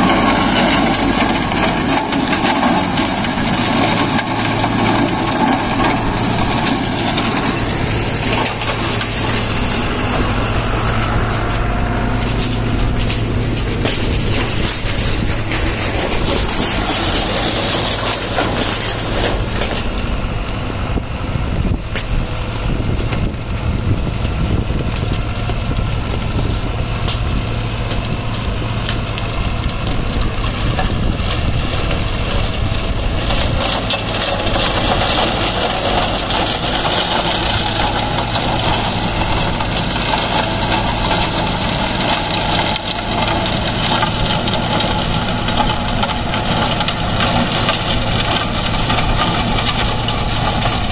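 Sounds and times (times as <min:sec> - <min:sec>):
stalks cracking: 0:00.0 - 0:20.7, 0:23.0 - 0:50.9
shredder rotor chopping stalks: 0:00.0 - 0:50.9
tractor diesel engine running: 0:00.0 - 0:50.9.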